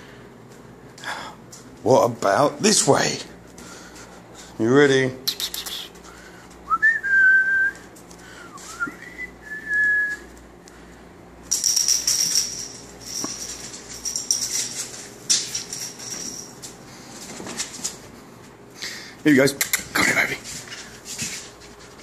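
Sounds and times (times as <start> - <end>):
person whistling: 6.7 - 7.8, 8.4 - 10.3
scuffling and light rattling: 7.5 - 18.8, 19.8 - 22.0
thin high ringing tone: 11.5 - 16.8.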